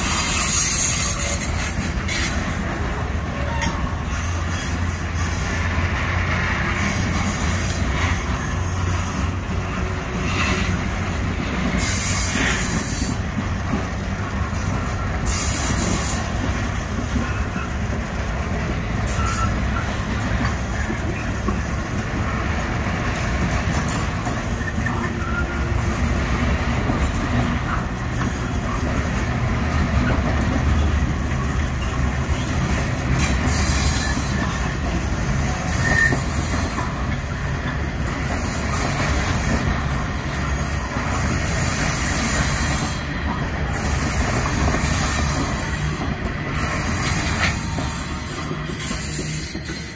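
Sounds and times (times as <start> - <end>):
steel wheels rumbling on rails: 0.0 - 49.9
high-pitched wheel squeals: 30.8 - 34.8, 35.4 - 37.2.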